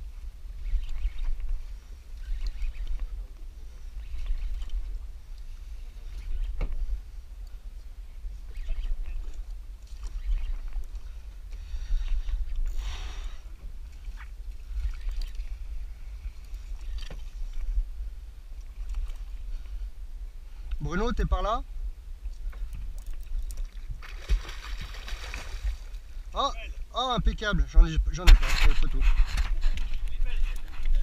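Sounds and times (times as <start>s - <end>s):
water sloshing and splashing: 13.8s - 15.6s, 23.0s - 26.2s.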